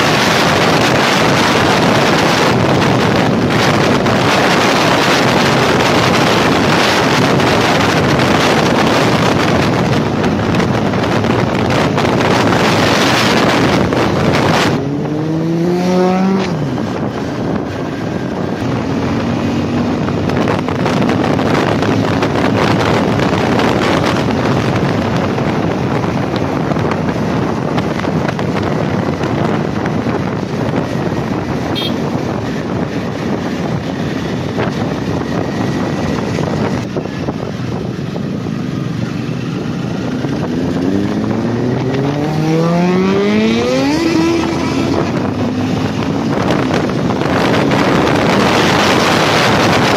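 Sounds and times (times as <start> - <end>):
motorcycle engine revving: 0.0 - 49.9
road noise: 0.0 - 49.9
wind rushing over microphone: 0.0 - 49.9.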